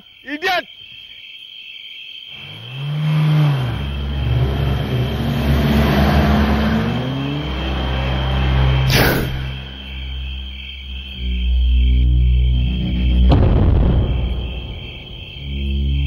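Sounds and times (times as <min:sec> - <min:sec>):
car engine revving: 0:02.3 - 0:16.0
loud engine burst: 0:12.6 - 0:16.0.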